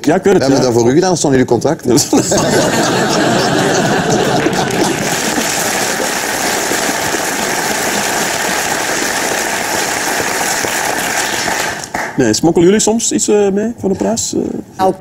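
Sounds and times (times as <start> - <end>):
audience laughter: 2.0 - 6.5
audience applauding: 2.4 - 12.2.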